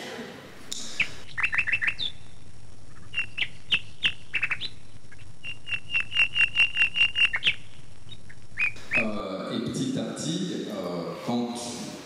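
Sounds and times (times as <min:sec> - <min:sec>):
birds chirping: 0:00.6 - 0:09.8.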